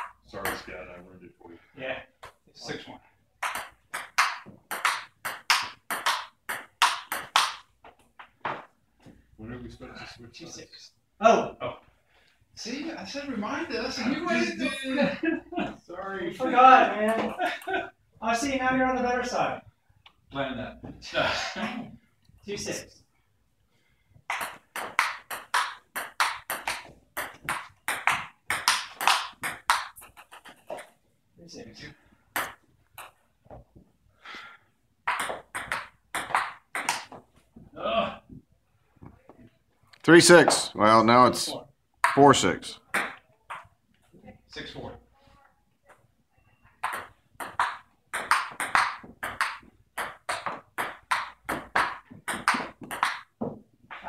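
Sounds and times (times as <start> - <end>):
table tennis ball knocking: 3.4 - 8.7, 24.3 - 30.9, 35.0 - 37.2, 46.8 - 53.6.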